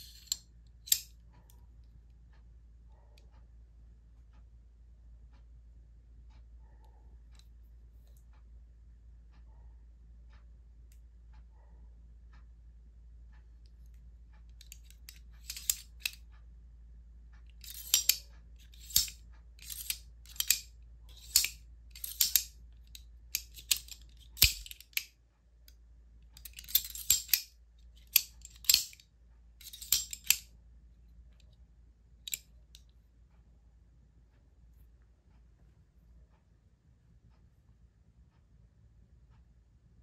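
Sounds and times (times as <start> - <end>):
knife blade metallic clacks: 0.0 - 1.1, 14.6 - 16.2, 17.6 - 22.6, 23.3 - 25.1, 26.4 - 29.0, 29.6 - 30.5.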